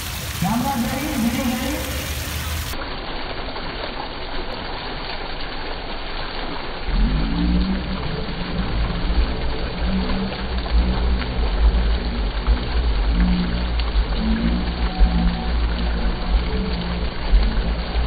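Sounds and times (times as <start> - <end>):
fountain water splashing: 0.0 - 18.0
low rumble with hum: 6.8 - 18.0.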